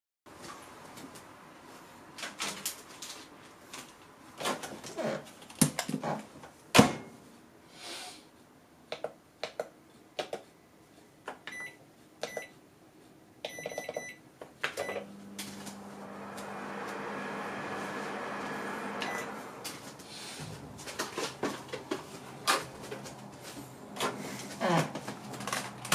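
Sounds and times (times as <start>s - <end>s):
short keypad beeps: 11.5s - 12.5s, 13.5s - 14.2s
microwave humming: 14.8s - 24.1s.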